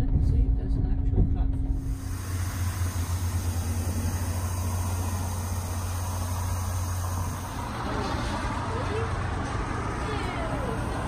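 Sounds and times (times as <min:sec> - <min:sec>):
diesel train idling: 0:01.7 - 0:11.0
light hiss: 0:01.8 - 0:09.2.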